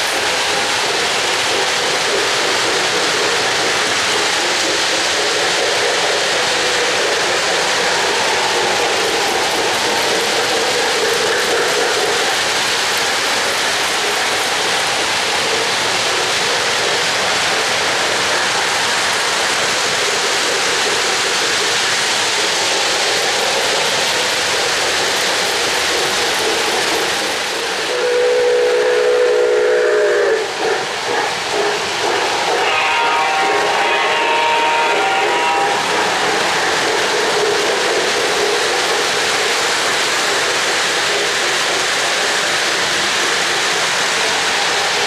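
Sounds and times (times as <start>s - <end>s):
model steam locomotive sounds: 0.0s - 45.0s
model train wheels rushing hiss: 0.0s - 45.0s
model train whistle: 27.9s - 30.5s, 32.6s - 35.9s.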